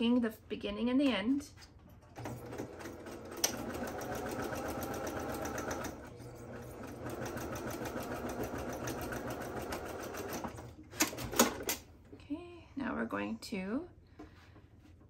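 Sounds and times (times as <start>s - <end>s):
sewing machine stitching: 2.1s - 11.8s.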